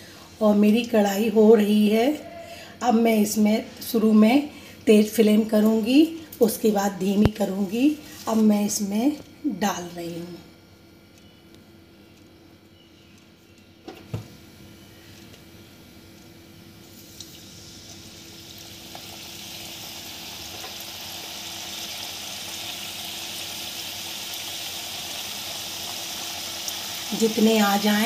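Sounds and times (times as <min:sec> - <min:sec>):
dough deep-frying in oil: 0:16.7 - 0:28.0.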